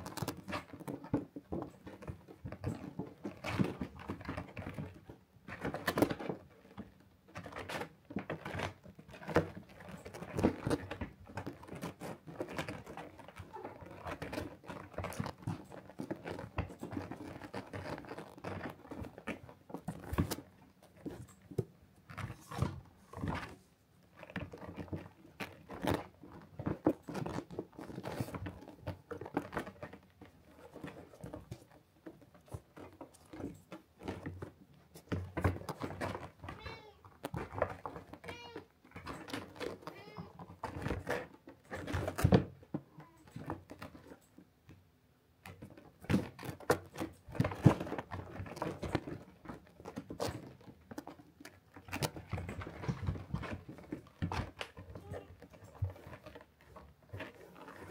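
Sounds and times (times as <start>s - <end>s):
kitten mewing: 36.6s - 37.0s, 38.2s - 38.7s.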